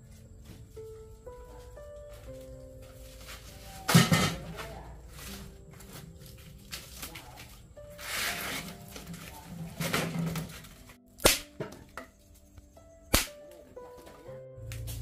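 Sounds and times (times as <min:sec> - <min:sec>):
sharp strikes: 0:11.2 - 0:11.8, 0:13.1 - 0:13.4.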